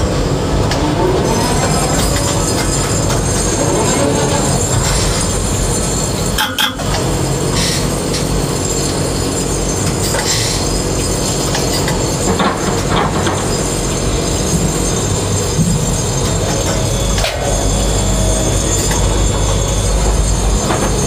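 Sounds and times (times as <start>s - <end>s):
crane machinery drone: 0.0s - 21.0s
whining tones: 0.2s - 7.0s, 13.5s - 21.0s.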